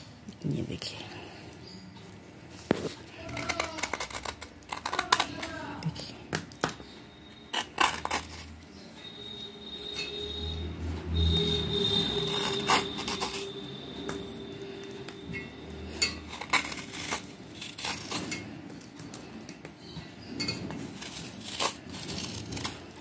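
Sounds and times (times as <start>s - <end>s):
knife scraping clay shard: 2.7s - 10.3s, 11.2s - 13.9s, 15.3s - 19.2s, 20.2s - 23.0s.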